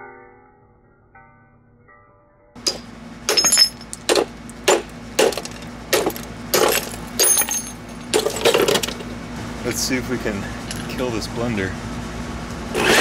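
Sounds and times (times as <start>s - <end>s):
blender motor humming: 12.7s - 13.0s.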